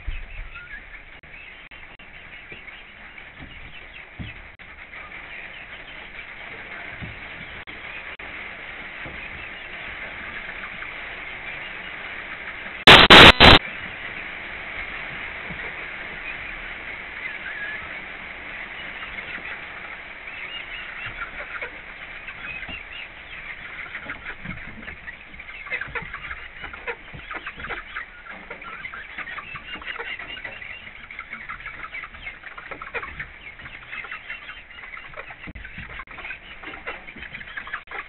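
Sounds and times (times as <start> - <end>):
chickens clucking: 0.0 - 38.0
rain on a roof: 6.2 - 18.8.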